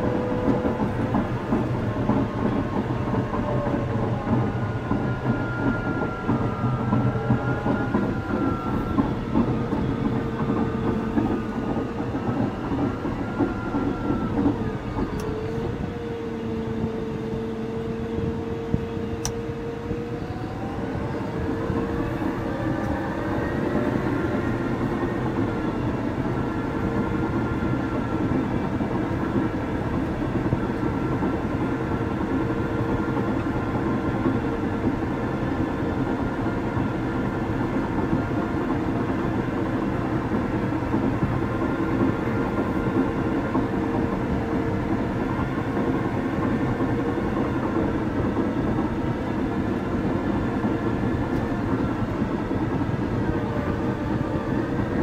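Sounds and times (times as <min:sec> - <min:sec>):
steel tracks clanking: 0:00.0 - 0:16.9
bulldozer diesel engine with whistle: 0:00.0 - 0:55.0.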